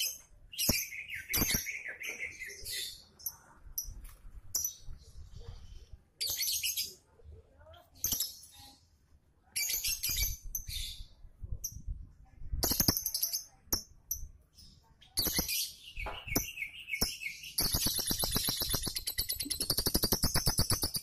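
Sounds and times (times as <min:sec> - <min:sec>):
lovebird shrill chirping: 0:12.6 - 0:14.3, 0:15.1 - 0:21.0.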